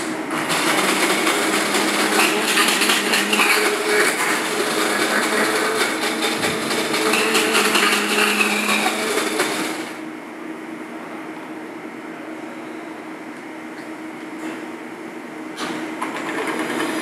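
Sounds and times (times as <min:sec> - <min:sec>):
stick blender running: 0:00.0 - 0:10.0, 0:16.0 - 0:17.0.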